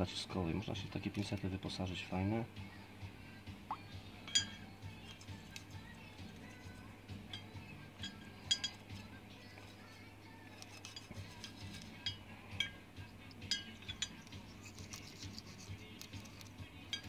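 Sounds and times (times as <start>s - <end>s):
metal part clinking against glass: 4.3s - 5.2s, 7.3s - 9.0s, 10.8s - 14.8s, 16.2s - 17.0s
brush scrubbing: 10.6s - 11.9s, 14.4s - 15.8s.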